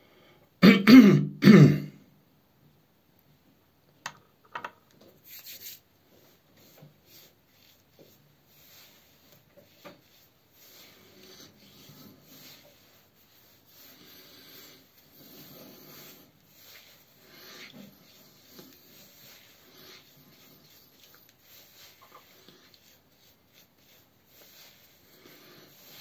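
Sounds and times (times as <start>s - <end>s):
hands scratching beard: 5.2s - 26.0s.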